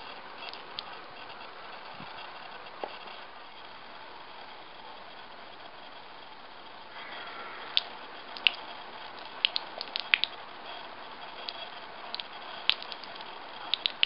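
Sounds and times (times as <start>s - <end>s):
sharp drip-like plinks: 0.0s - 1.4s, 6.9s - 14.0s
water trickling onto rock: 7.7s - 10.4s, 11.4s - 14.0s.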